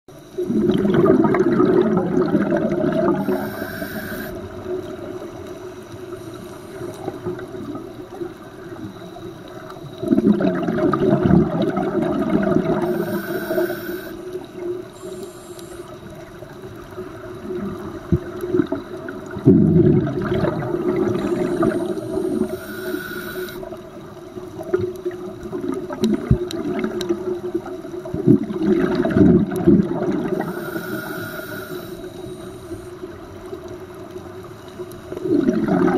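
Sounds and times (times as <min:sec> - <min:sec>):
exhaled bubbles rushing: 0:00.4 - 0:05.6, 0:06.8 - 0:13.7, 0:16.2 - 0:22.6, 0:23.6 - 0:30.6, 0:35.1 - 0:35.9
regulator inhalation hiss: 0:03.0 - 0:04.6, 0:05.6 - 0:07.4, 0:12.7 - 0:16.2, 0:21.0 - 0:23.8, 0:30.4 - 0:33.0.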